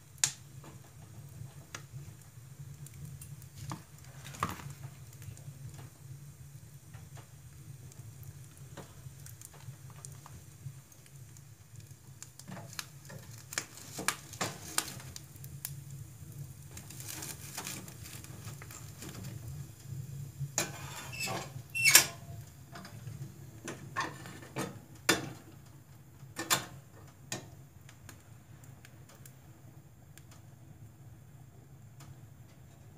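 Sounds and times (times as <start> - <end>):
wood fire crackling: 0.0 - 32.9
poker clanking in stove: 12.4 - 15.2, 20.6 - 25.5.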